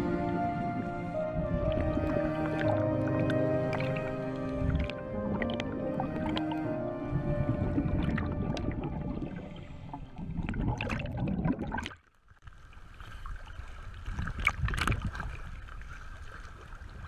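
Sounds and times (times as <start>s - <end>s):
scuba bubbles gurgling underwater: 0.0s - 12.0s
sea water splashing: 0.0s - 17.0s.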